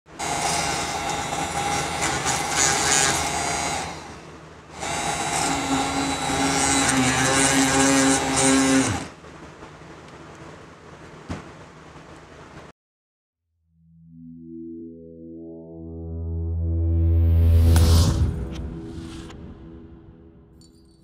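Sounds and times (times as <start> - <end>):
small drill motor boring wood: 0.2 - 9.2.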